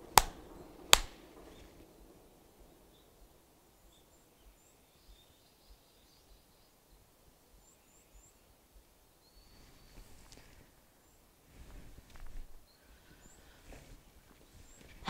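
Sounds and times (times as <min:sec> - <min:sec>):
faint high bird chirps: 0:02.7 - 0:10.2.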